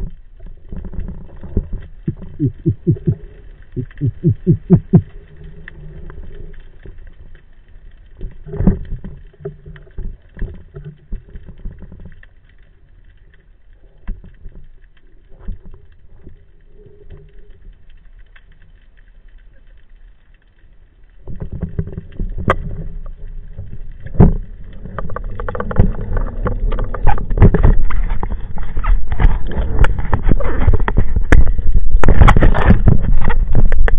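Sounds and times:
crackling water rush: 0:00.0 - 0:33.9
faint underwater clicks and knocks: 0:00.0 - 0:33.9
low rumble: 0:01.2 - 0:09.6.

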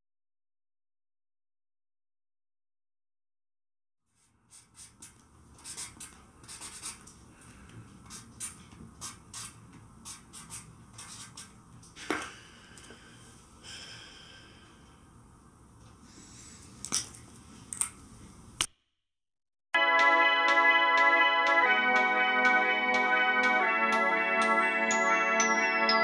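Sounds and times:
marker pen scratching on card: 0:04.5 - 0:07.0, 0:08.1 - 0:11.6.

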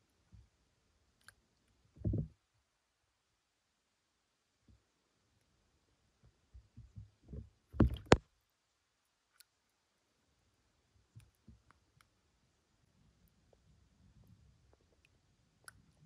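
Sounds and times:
thuds: 0:02.0 - 0:02.4, 0:06.8 - 0:08.2.

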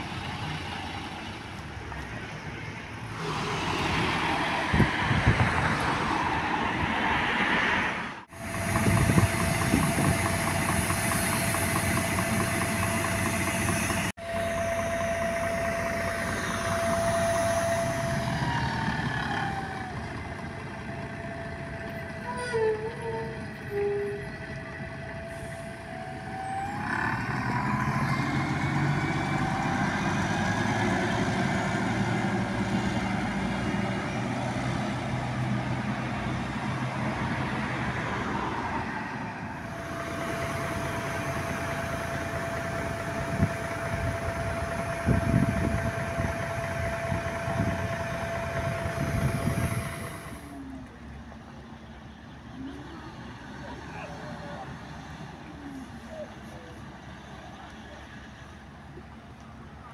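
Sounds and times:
bus engine accelerating: 0:00.0 - 0:59.9
street traffic: 0:00.0 - 0:59.9.

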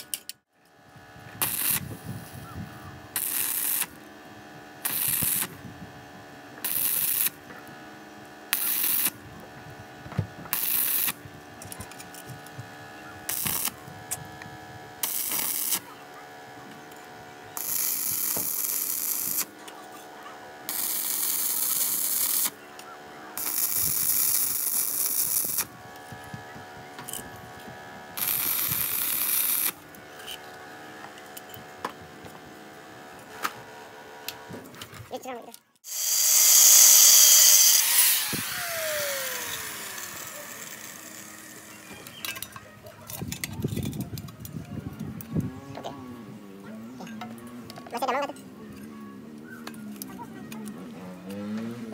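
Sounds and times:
welding arc crackling hiss: 0:01.4 - 0:02.3, 0:03.1 - 0:04.0, 0:04.8 - 0:05.6, 0:06.6 - 0:07.4, 0:08.5 - 0:09.2, 0:10.5 - 0:11.2, 0:13.2 - 0:14.2, 0:15.0 - 0:15.9, 0:17.6 - 0:19.6, 0:20.7 - 0:22.6, 0:23.4 - 0:25.7, 0:28.2 - 0:30.0, 0:35.9 - 0:42.0.

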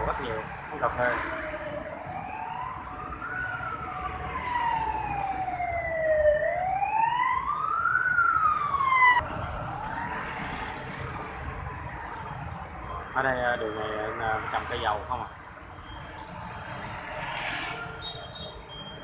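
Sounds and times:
street traffic noise: 0:00.0 - 0:19.0
emergency siren wailing: 0:00.8 - 0:12.0.

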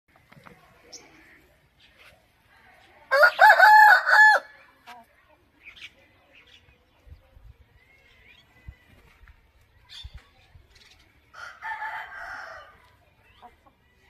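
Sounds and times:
faint chirps and clucks: 0:00.1 - 0:14.0
rooster crowing: 0:03.1 - 0:04.5, 0:11.4 - 0:12.7.

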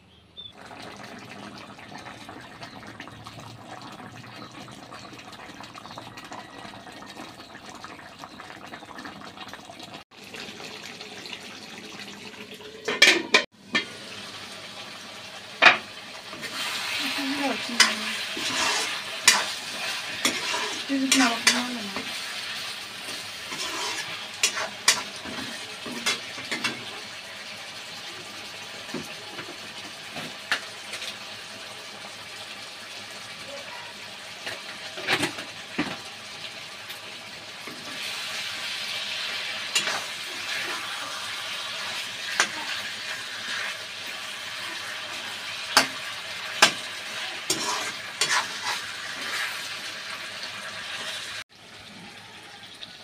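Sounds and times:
curry bubbling and sizzling: 0:00.5 - 0:53.0
ladle scraping and clinking on pan: 0:17.8 - 0:21.7, 0:23.5 - 0:26.8, 0:39.7 - 0:40.1, 0:47.4 - 0:49.6.

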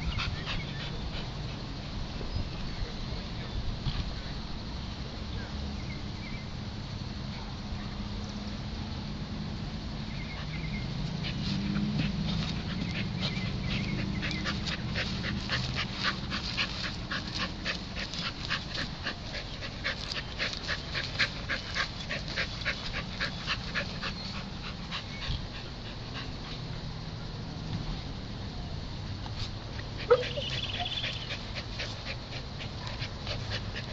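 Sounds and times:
dog panting: 0:00.0 - 0:02.0, 0:10.3 - 0:27.1, 0:29.8 - 0:33.9.

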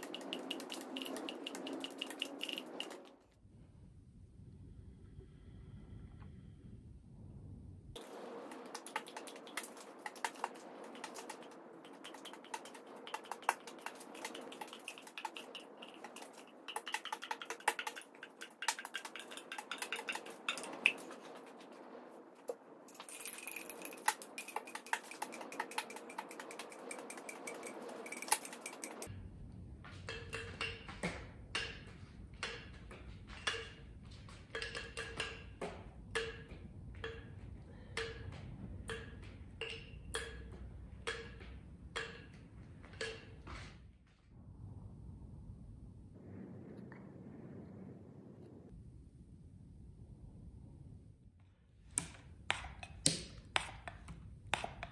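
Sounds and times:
low rumble: 0:00.0 - 0:08.8, 0:29.0 - 0:34.6, 0:44.0 - 0:51.7.

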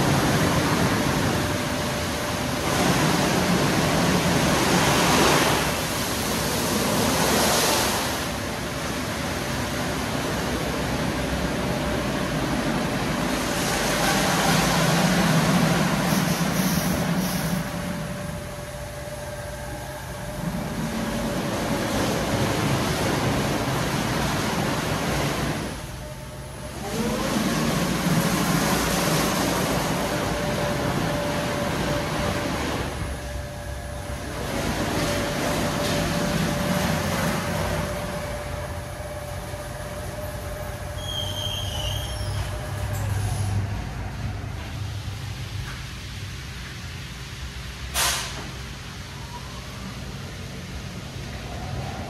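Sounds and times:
machinery whining: 0:00.0 - 0:44.6
machinery rumbling: 0:00.0 - 0:46.6
car wash water spray rushing: 0:00.0 - 0:52.0
high squeaks: 0:40.9 - 0:43.2.

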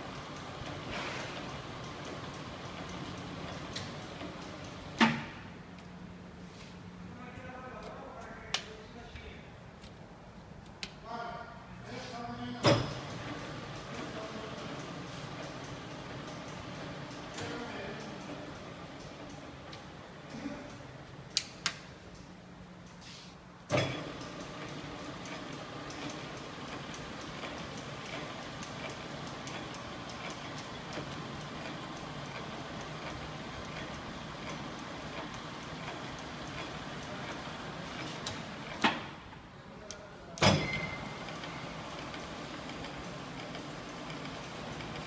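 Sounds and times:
lathe running hum: 0:00.0 - 0:05.0, 0:13.0 - 0:21.3, 0:23.9 - 0:39.2, 0:40.9 - 0:45.0
loud lever clunk: 0:05.0 - 0:05.4, 0:23.7 - 0:24.1, 0:40.4 - 0:41.2.

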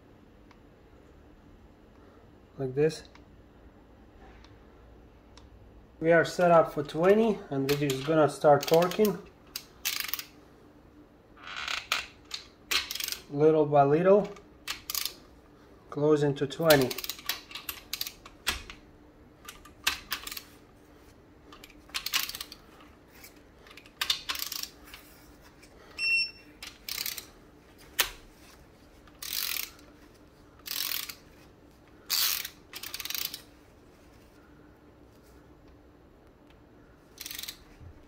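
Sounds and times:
torque wrench ratchet clicking: 0:08.6 - 0:10.3, 0:12.7 - 0:13.3, 0:14.7 - 0:15.2, 0:22.0 - 0:22.6, 0:24.0 - 0:24.8, 0:26.6 - 0:27.3, 0:29.2 - 0:29.8, 0:30.6 - 0:31.2, 0:32.1 - 0:33.4, 0:37.2 - 0:37.6
short electronic beep: 0:26.0 - 0:26.5.

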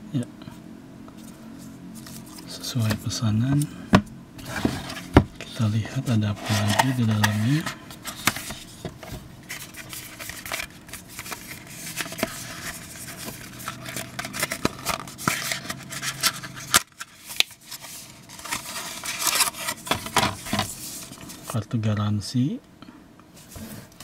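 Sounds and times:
paper leaflets rustling: 0:04.4 - 0:21.6.

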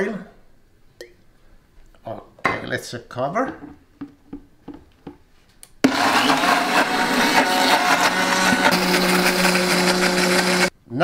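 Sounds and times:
blender running: 0:05.8 - 0:10.7.

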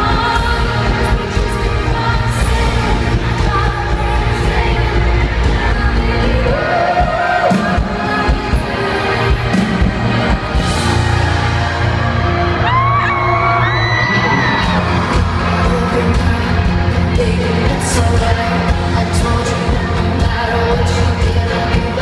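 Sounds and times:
woman singing: 0:00.0 - 0:10.0, 0:14.6 - 0:22.0
live pop band: 0:00.0 - 0:22.0
audience whooping and shouting: 0:10.6 - 0:16.4.

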